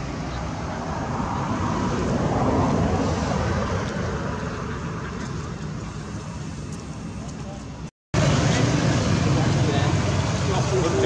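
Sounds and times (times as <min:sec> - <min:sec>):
motor vehicle passing: 0:00.0 - 0:07.0.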